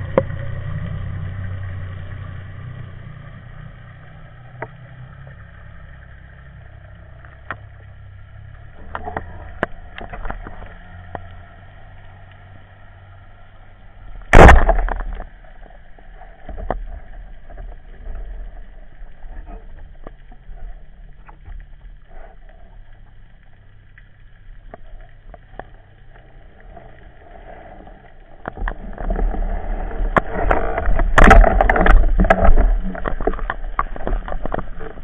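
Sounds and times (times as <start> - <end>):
low underwater background: 0.0 - 35.0
underwater rumble with knocks and scrapes: 0.0 - 35.0
faint clicks: 4.2 - 12.8, 13.4 - 29.3.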